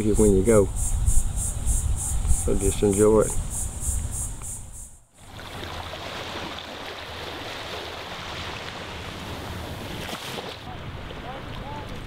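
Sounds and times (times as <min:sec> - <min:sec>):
small waves washing on beach: 0:05.2 - 0:12.0.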